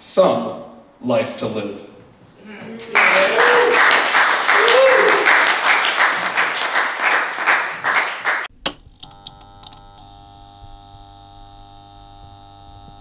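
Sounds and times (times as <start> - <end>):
audience applauding: 2.6 - 8.5
faint hum of held tones: 8.6 - 13.0.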